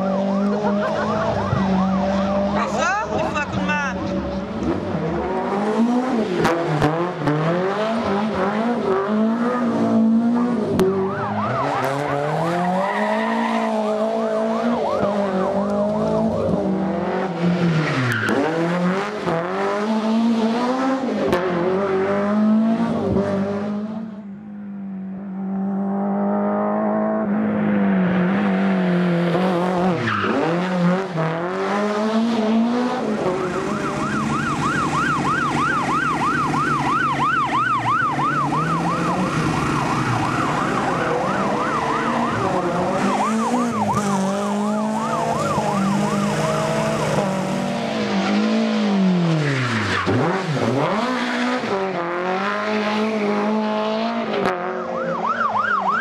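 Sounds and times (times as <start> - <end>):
rally car engines revving: 0.0 - 56.0.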